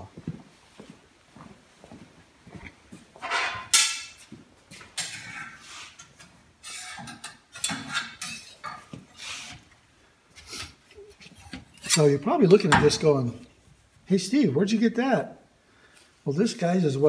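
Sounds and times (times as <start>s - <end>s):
metal tools clanking on workbench: 3.2s - 4.2s, 5.0s - 8.9s, 11.3s - 13.1s.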